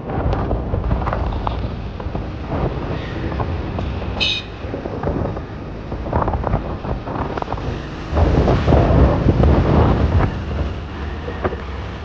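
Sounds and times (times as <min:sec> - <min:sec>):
road and engine rumble: 0:00.0 - 0:12.0
wind buffeting microphone: 0:00.0 - 0:12.0.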